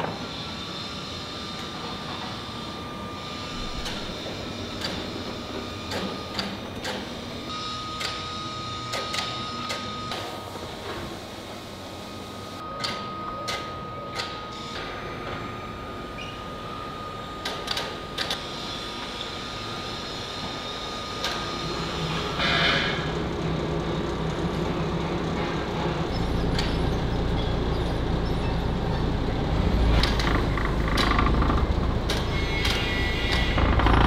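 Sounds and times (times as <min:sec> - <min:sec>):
deep machinery rumble: 0:23.1 - 0:32.6, 0:33.3 - 0:34.0.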